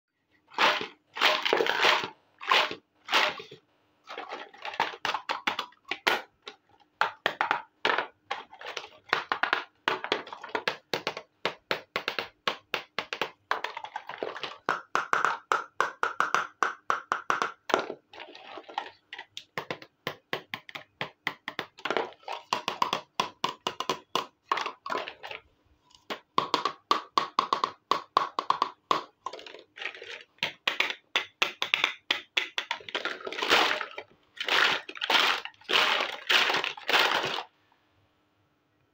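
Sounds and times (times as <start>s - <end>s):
plastic toy pieces clattering: 31.7s - 37.5s.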